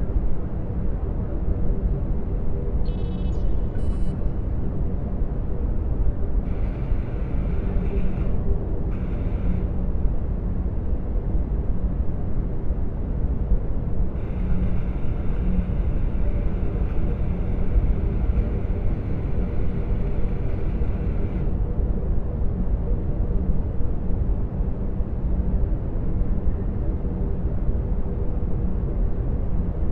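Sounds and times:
deep spaceship rumble: 14.1 - 21.5.

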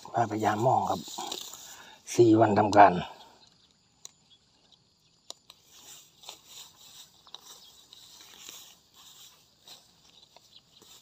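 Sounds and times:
footsteps through grass: 0.0 - 3.0, 5.4 - 11.0.

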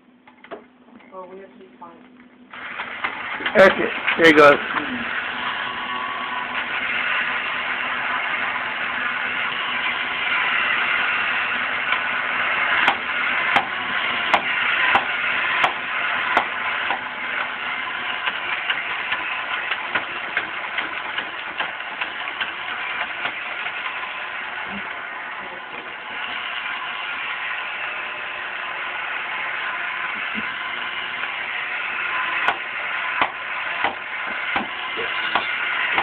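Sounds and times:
toy motor and gears whirring: 2.5 - 36.0.

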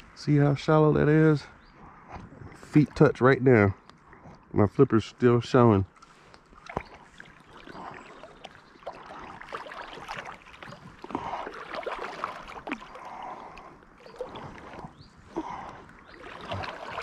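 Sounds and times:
water splashing and sloshing: 5.8 - 17.0.

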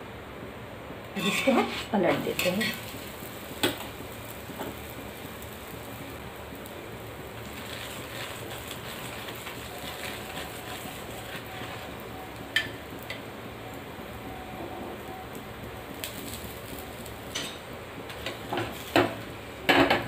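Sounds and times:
faint oil crackling: 1.0 - 19.7
flatbread sizzling on a hot griddle: 1.0 - 20.0
metal spatula clinking: 1.2 - 2.8.

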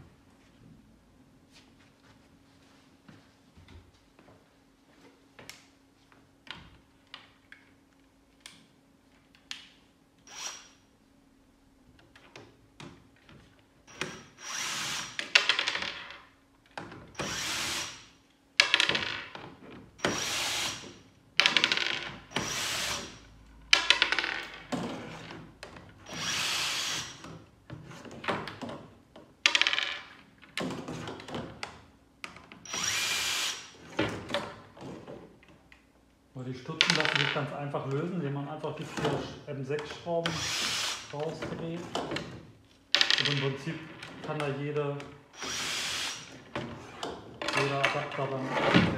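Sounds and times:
drill-driver running: 10.3 - 10.8, 13.9 - 15.3, 17.2 - 18.1, 20.0 - 21.6, 22.3 - 23.2, 26.0 - 27.2, 32.7 - 33.8, 40.2 - 41.1, 45.3 - 46.4.

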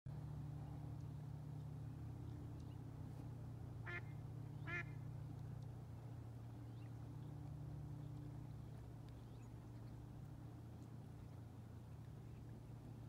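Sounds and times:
steady low hum: 0.1 - 13.0
waterbird calls: 3.8 - 5.8.

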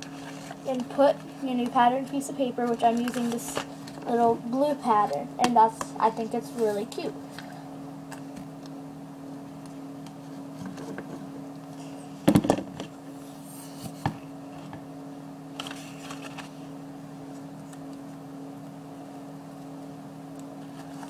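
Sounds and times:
paper rustling: 0.0 - 4.0, 15.6 - 16.6, 20.7 - 21.0
steady low hum: 0.0 - 21.0.

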